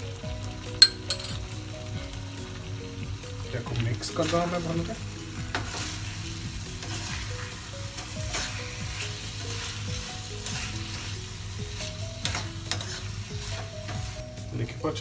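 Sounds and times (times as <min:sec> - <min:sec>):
pan sizzling: 0:00.0 - 0:15.0
metal spatula scraping pan: 0:12.2 - 0:14.0.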